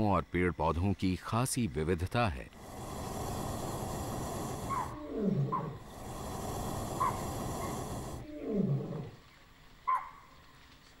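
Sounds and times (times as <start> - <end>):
lion roaring: 2.6 - 9.2.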